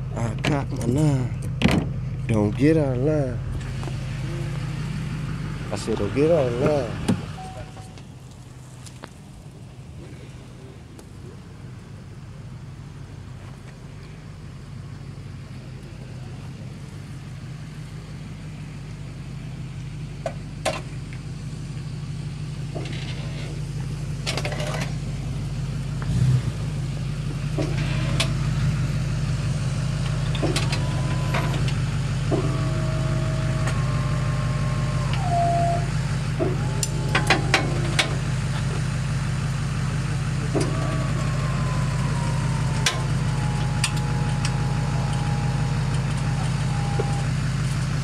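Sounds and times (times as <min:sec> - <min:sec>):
truck engine idling: 0:00.0 - 0:48.0
higher pitched sounds: 0:39.8 - 0:47.5
clicks: 0:42.0 - 0:47.9.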